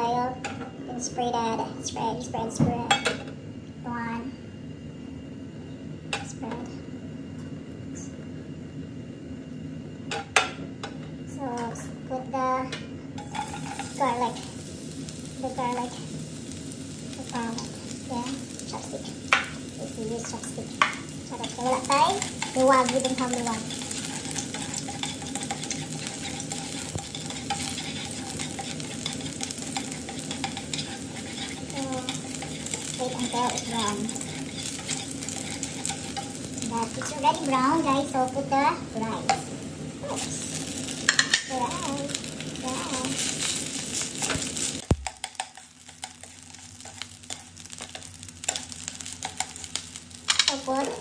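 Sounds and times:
chopsticks scraping a pan: 0:13.2 - 0:14.4, 0:20.2 - 0:38.0, 0:39.3 - 0:51.0
garlic sizzling in oil: 0:13.2 - 0:51.0.

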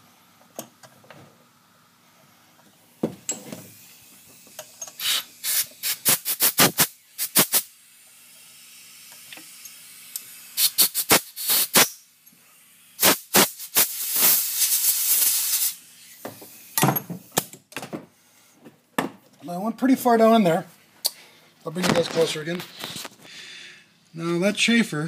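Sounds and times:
steady hiss: 0:02.1 - 0:17.4.

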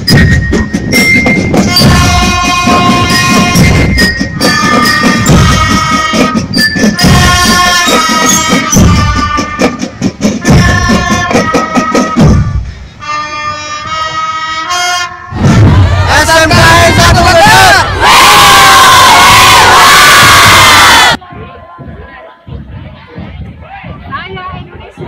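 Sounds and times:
drum strokes: 0:00.0 - 0:12.9, 0:15.3 - 0:25.0
marching band playing a march: 0:00.0 - 0:25.0
crowd shouting: 0:15.4 - 0:22.4.

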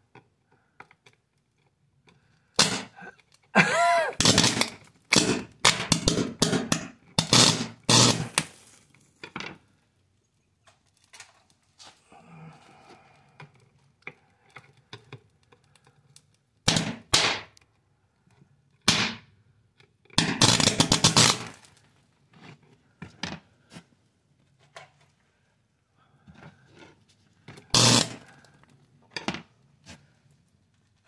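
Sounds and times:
hissing crackle of sparks: 0:02.6 - 0:03.2, 0:03.9 - 0:09.2, 0:20.2 - 0:22.0, 0:27.7 - 0:28.6
faint ticks and crackles: 0:08.8 - 0:16.6.

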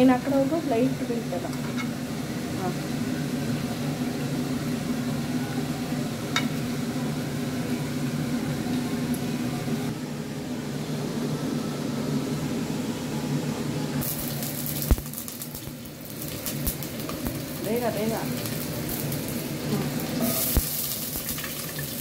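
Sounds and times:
kitchen hum and hiss: 0:00.0 - 0:22.0
chilli crackling in hot pot: 0:14.0 - 0:22.0.

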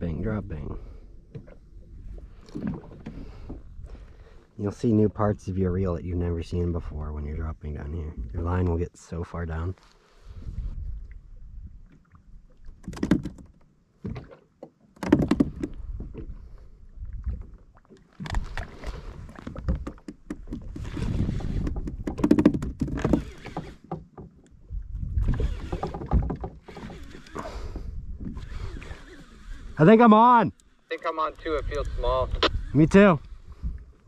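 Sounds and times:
water lapping against a kayak hull: 0:00.0 - 0:07.2, 0:07.9 - 0:34.0
wind rumbling on the microphone: 0:10.2 - 0:13.4, 0:15.1 - 0:23.7, 0:24.6 - 0:29.8, 0:31.4 - 0:34.0.

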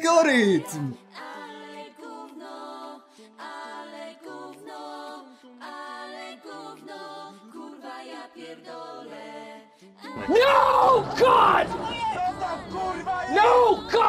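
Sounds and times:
lower voice line: 0:00.0 - 0:01.0
voices chanting held notes: 0:00.0 - 0:14.0.

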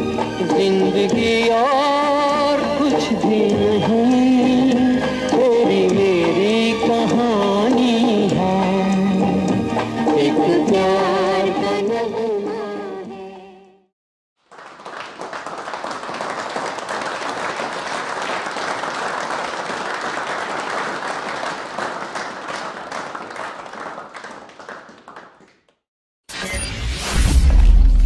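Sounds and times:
crowd applauding: 0:14.4 - 0:25.8.

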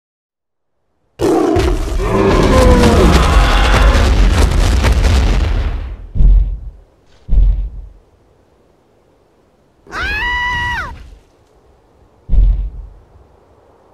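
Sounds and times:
creature roar: 0:01.2 - 0:04.3
heavy low rumble: 0:01.7 - 0:08.1, 0:12.2 - 0:13.4.

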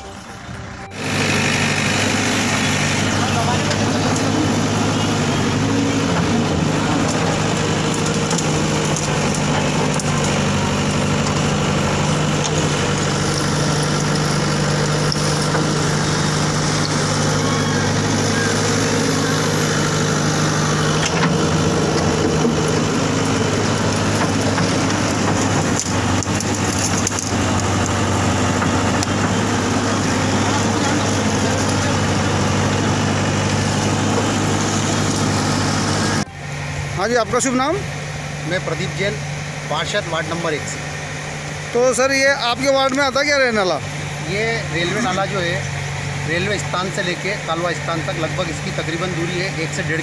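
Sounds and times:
diesel engine running: 0:00.0 - 0:50.0.

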